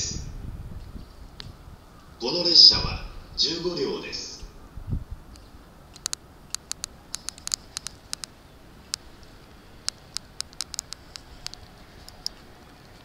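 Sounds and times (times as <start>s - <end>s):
light sharp clicks and taps: 6.0s - 8.3s, 8.9s - 13.0s.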